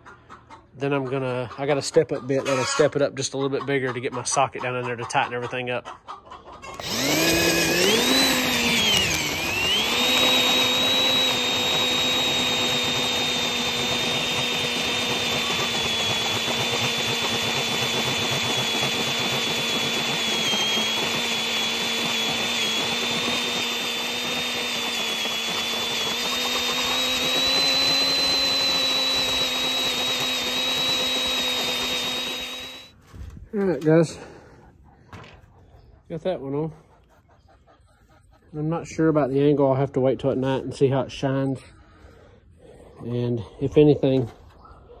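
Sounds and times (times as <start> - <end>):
electric drill boring through steel: 6.7 - 33.0.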